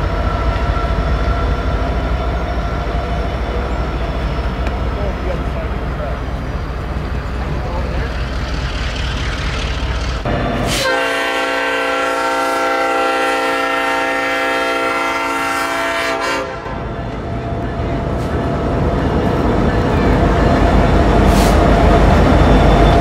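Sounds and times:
locomotive rumble: 0.0s - 23.0s
train wheel noise: 0.0s - 23.0s
locomotive air horn blast: 10.6s - 16.9s.

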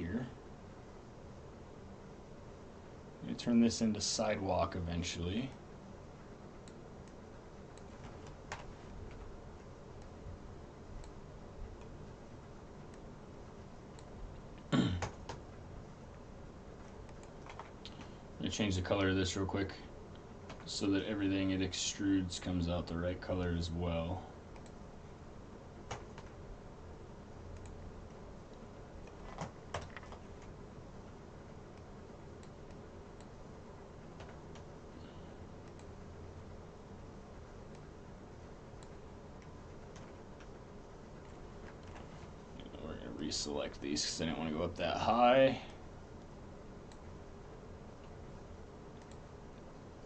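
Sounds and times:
low room hum: 0.0s - 50.0s
computer mouse clicks: 6.6s - 9.3s, 11.0s - 12.0s, 16.8s - 18.1s, 24.5s - 24.8s, 27.5s - 30.6s, 31.7s - 33.4s, 35.6s - 36.0s, 48.9s - 49.9s
computer keyboard and mouse clicks: 7.8s - 9.3s, 16.8s - 18.1s, 25.8s - 26.4s, 27.6s - 30.6s, 34.2s - 34.7s, 38.8s - 40.6s.

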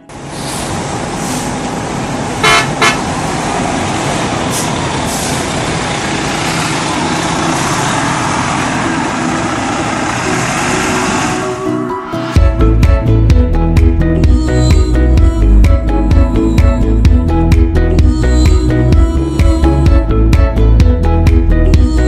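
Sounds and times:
road traffic noise: 0.0s - 12.4s
vehicle horn honking: 2.4s - 3.1s.

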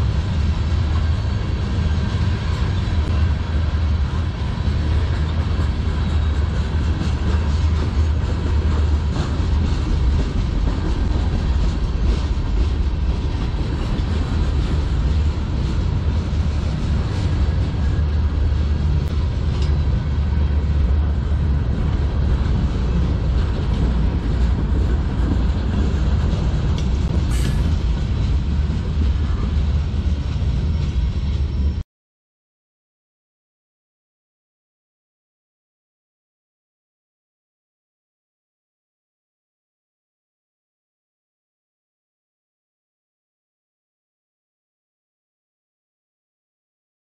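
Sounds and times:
train wheels rumbling on rail: 0.0s - 31.8s.

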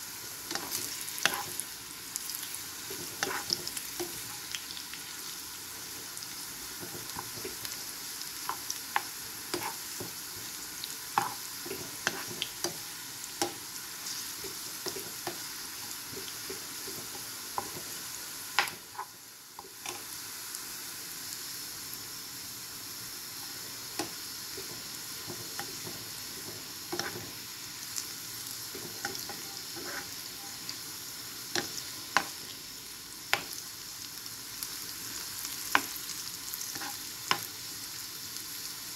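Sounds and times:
food sizzling in hot oil: 0.0s - 38.9s
utensil scraping against pan: 2.9s - 4.2s, 9.5s - 10.1s, 11.2s - 12.8s, 24.6s - 27.4s, 28.7s - 30.6s.

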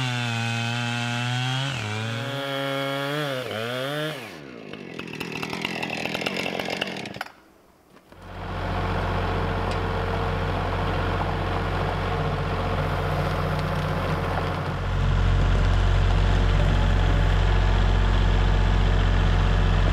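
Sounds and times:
chainsaw running: 0.0s - 7.4s, 8.1s - 19.9s
diesel tractor engine starting and running: 8.1s - 19.9s.

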